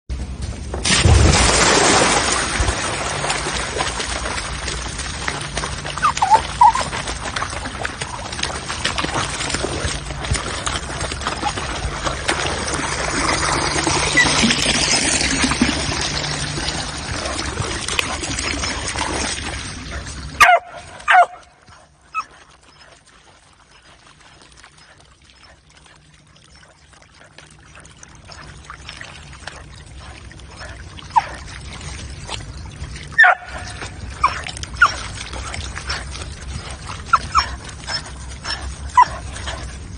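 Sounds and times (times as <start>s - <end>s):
muddy water running and splashing: 0.1s - 39.9s
dog whimpers: 6.0s - 6.9s.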